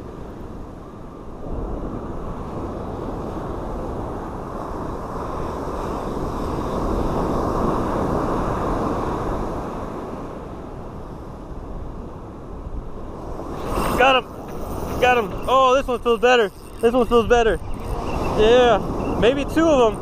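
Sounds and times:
wind rumble on microphone: 0.0s - 20.0s
ocean surf breaking: 13.0s - 20.0s.

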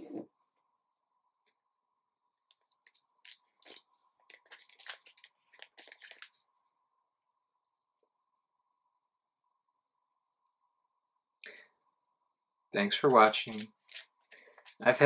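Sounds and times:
faint steady hum: 0.0s - 15.0s
plastic bag crinkling: 2.8s - 6.4s, 12.9s - 14.9s.

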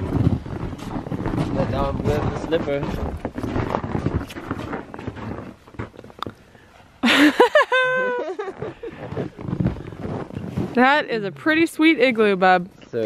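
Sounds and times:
footsteps crunching snow: 0.0s - 6.2s, 8.3s - 11.9s.

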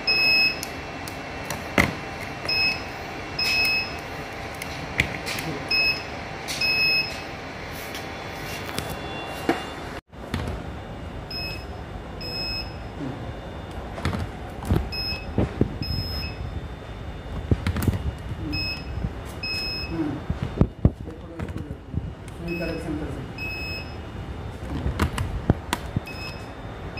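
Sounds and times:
steady machine noise: 0.0s - 26.9s
short high beeps: 18.5s - 20.0s.

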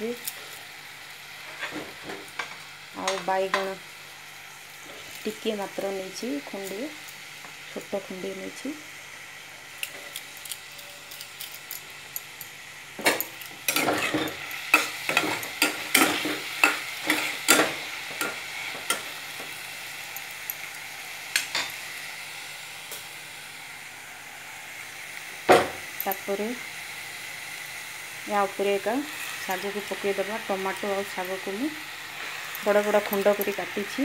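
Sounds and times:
vegetables sizzling in oil: 0.0s - 34.0s
utensil scraping a pan: 13.0s - 19.0s.

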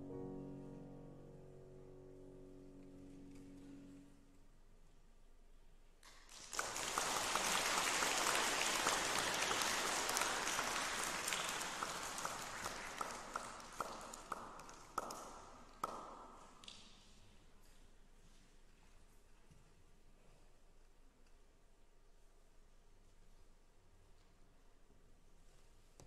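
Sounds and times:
audience applauding: 6.1s - 16.2s.

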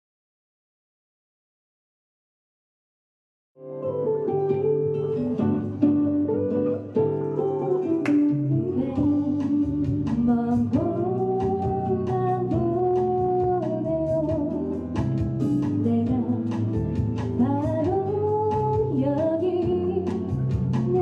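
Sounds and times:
plucked guitar backing track: 3.6s - 21.0s
woman singing a slow ballad: 8.5s - 14.9s, 15.6s - 21.0s.

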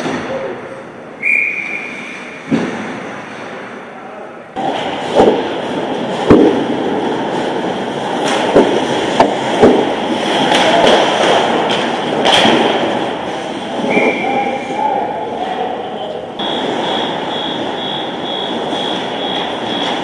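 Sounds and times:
hockey sticks and puck clacking: 4.6s - 14.6s
skates scraping ice: 4.6s - 14.8s.

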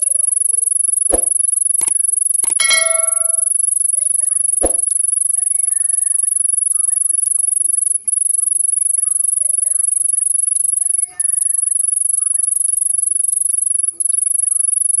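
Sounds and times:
cricket trilling: 5.2s - 15.0s.

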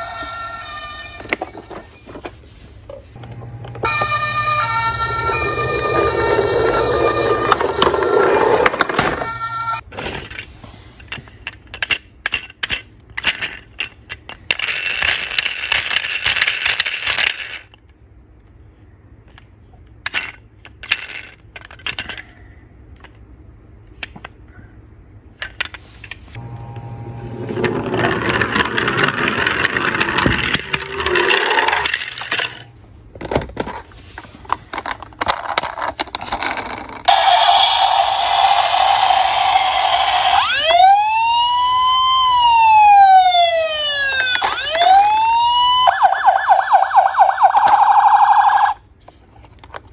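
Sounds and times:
toy electronic buzzing tone: 3.8s - 9.8s, 37.1s - 40.8s
plastic toys clicking and rattling: 11.0s - 18.0s, 19.2s - 23.2s, 27.6s - 37.1s, 44.1s - 45.2s, 49.0s - 49.9s.

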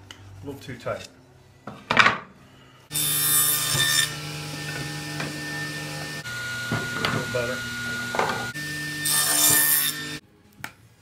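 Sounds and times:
workshop machine motor humming: 4.1s - 9.1s.

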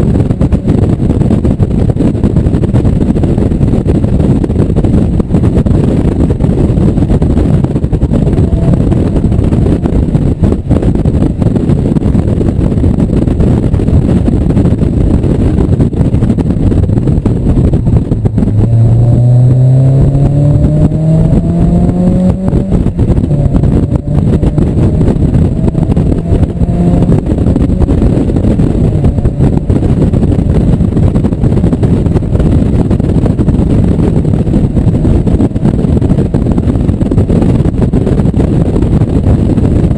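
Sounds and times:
heavy wind buffeting: 0.0s - 39.9s
road noise: 0.0s - 39.9s
car engine accelerating: 7.0s - 11.4s, 17.8s - 31.4s.

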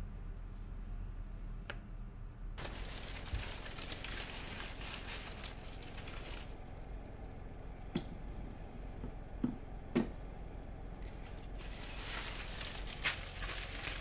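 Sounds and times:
low steady hum: 0.0s - 14.0s
paper crinkling and rustling: 2.6s - 6.6s, 11.0s - 14.0s.

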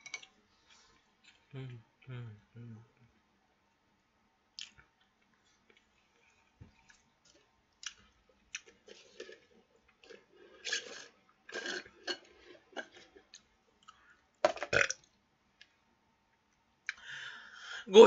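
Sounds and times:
quiet chewing: 4.6s - 14.3s.

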